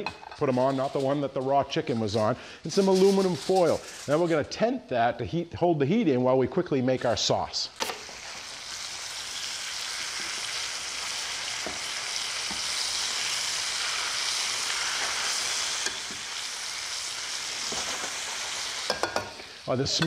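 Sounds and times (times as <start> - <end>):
chicken sizzling in oil: 7.8 - 20.0.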